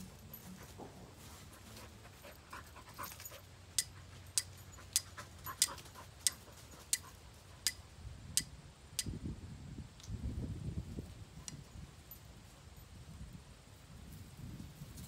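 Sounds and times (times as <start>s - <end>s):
dry straw rustling: 0.0s - 4.1s.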